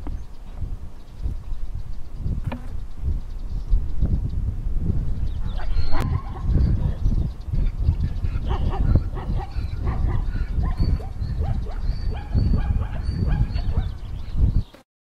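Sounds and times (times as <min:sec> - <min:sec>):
yelping animal calls: 0:05.4 - 0:07.0, 0:07.6 - 0:14.1.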